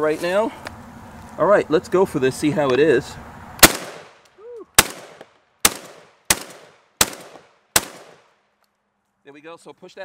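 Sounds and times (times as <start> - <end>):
shotgun shots with echo: 3.6 - 4.2, 4.8 - 8.3.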